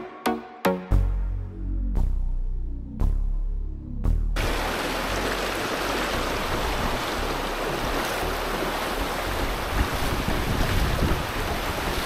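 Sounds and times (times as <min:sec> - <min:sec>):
stream rushing over rocks: 0:04.4 - 0:12.0
wind buffeting microphone: 0:05.8 - 0:12.0.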